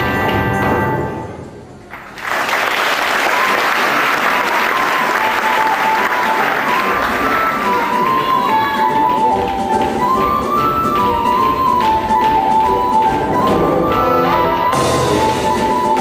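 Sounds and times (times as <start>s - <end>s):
audience applauding: 1.9s - 16.0s
faint tune: 4.6s - 16.0s
dance music: 5.0s - 16.0s.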